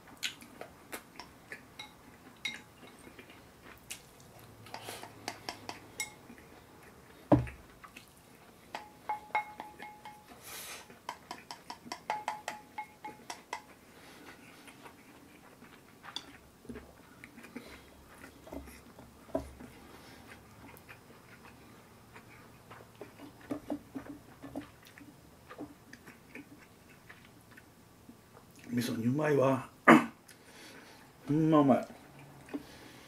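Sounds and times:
chopsticks tapping on plates: 0:01.2 - 0:03.1, 0:04.7 - 0:06.3, 0:08.7 - 0:10.4, 0:11.0 - 0:13.8
chopsticks clicking on ceramic bowl: 0:08.7 - 0:10.2, 0:11.1 - 0:13.7.

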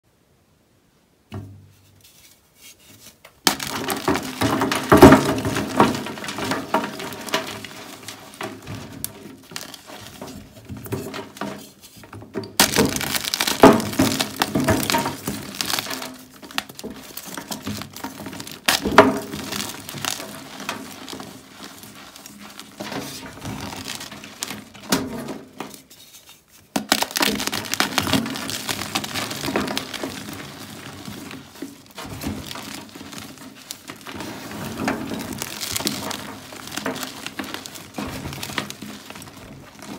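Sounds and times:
chalk block crunching and crumbling: 0:02.1 - 0:39.9.

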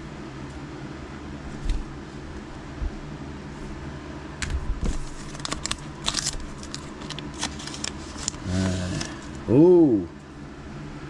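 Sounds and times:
foil pack crinkling and tearing: 0:04.8 - 0:09.4.

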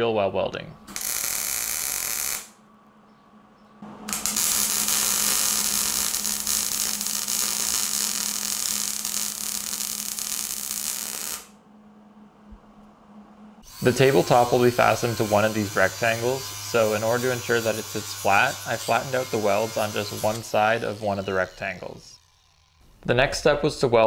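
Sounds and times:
welding arc sizzling hiss: 0:00.9 - 0:02.6, 0:04.0 - 0:11.6, 0:13.6 - 0:23.2
low steady hum: 0:10.6 - 0:16.8.

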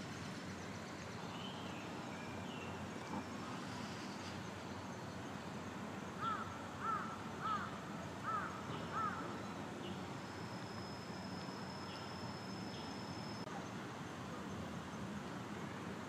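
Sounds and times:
outdoor background noise: 0:00.0 - 0:16.0
bird calling: 0:06.2 - 0:09.4
thin high steady tone: 0:08.0 - 0:16.0.

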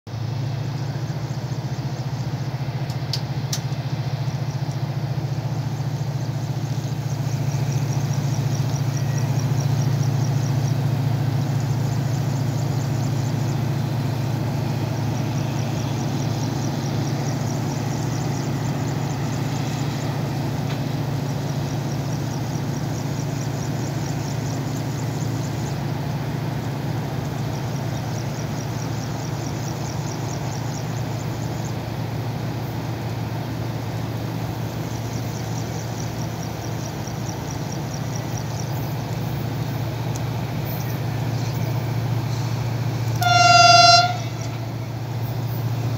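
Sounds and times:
diesel engine idling: 0:00.1 - 0:45.9.

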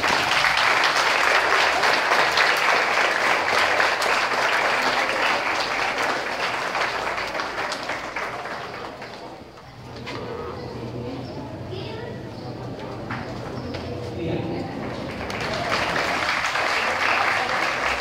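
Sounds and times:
audience applauding: 0:00.0 - 0:09.5, 0:14.7 - 0:18.0.

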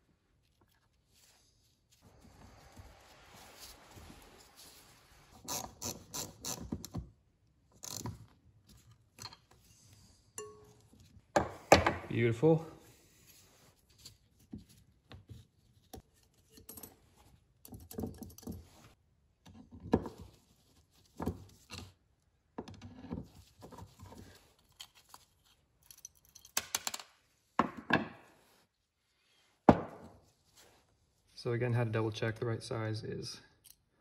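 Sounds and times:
gloves rustling: 0:00.0 - 0:05.4
metal parts clicking and scraping: 0:24.6 - 0:27.1.

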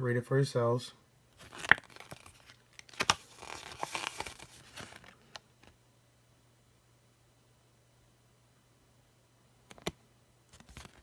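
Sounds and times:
paper leaflet rustling: 0:01.4 - 0:05.7, 0:10.5 - 0:11.0.

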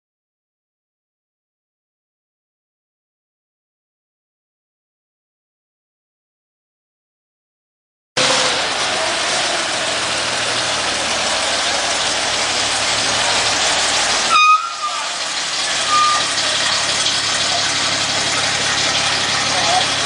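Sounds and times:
fire engine engine running: 0:08.2 - 0:20.0.

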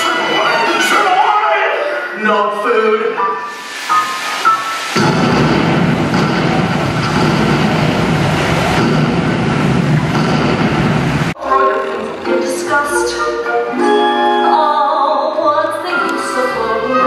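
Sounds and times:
loud rumbling roar: 0:05.0 - 0:11.4.

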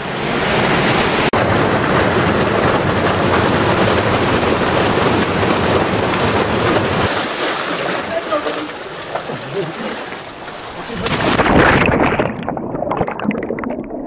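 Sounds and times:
waterfall rushing: 0:00.0 - 0:10.4.

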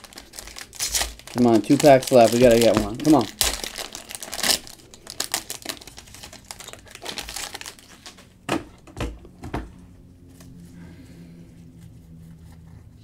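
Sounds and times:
card pack wrapper crinkling: 0:00.0 - 0:08.2
wrapper snaps: 0:00.0 - 0:08.2.

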